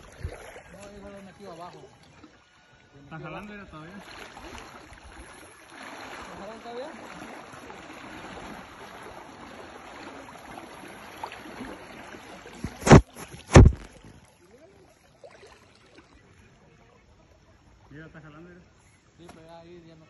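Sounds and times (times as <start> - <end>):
river water rushing: 3.9 - 13.8
loud thumps: 12.6 - 13.9.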